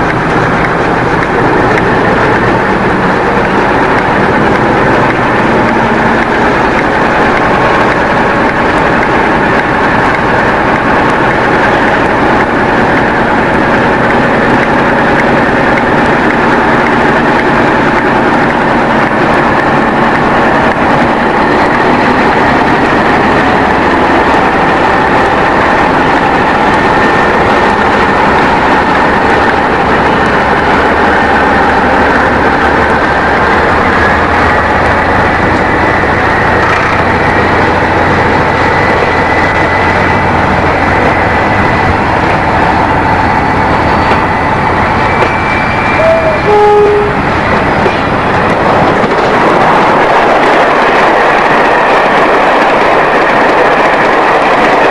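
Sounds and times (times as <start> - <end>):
diesel locomotive engine running: 0.0 - 54.9
brief squeal: 45.1 - 47.1.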